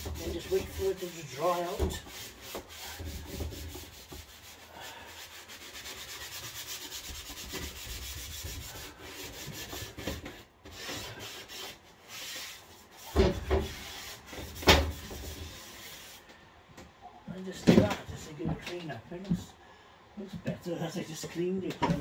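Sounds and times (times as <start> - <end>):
sponge scrubbing wood: 0.0 - 16.2.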